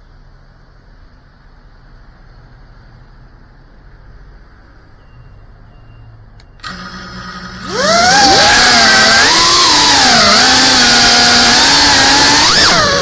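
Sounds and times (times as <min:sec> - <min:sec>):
click: 0:06.4 - 0:06.8
drone motors humming and whining: 0:06.6 - 0:13.0.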